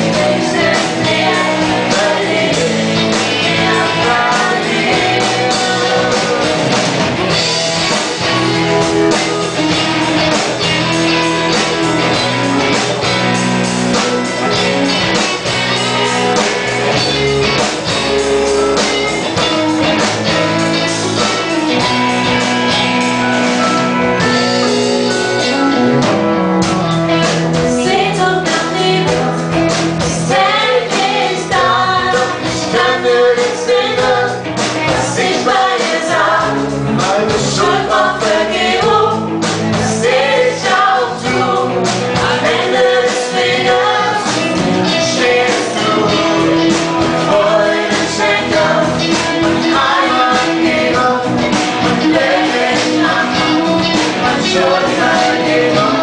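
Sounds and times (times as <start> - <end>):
woman singing: 0.0 - 6.8, 27.6 - 36.6, 39.8 - 46.4, 47.3 - 56.0
man singing: 0.0 - 7.0, 31.5 - 38.5, 39.8 - 56.0
worship band playing: 0.0 - 56.0.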